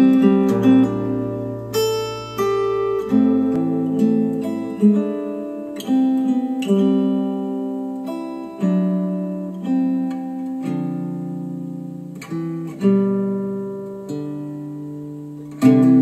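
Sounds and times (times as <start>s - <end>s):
acoustic guitar music over speakers: 0.0s - 16.0s.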